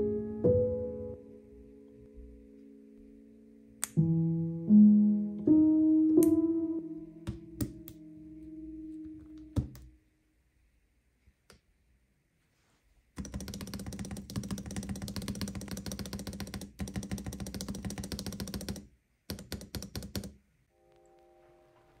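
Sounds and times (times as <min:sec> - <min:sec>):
soft chime music: 0:20.8 - 0:22.0.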